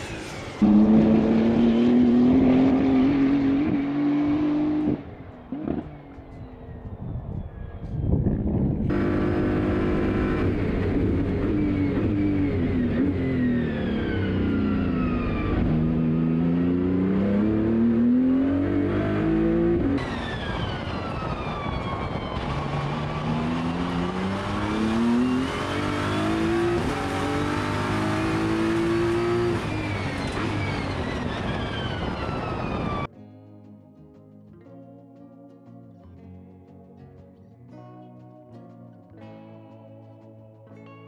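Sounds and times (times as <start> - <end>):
race car engine revving: 0.0 - 5.9, 8.9 - 20.0, 22.4 - 31.5
soft music: 33.1 - 41.0.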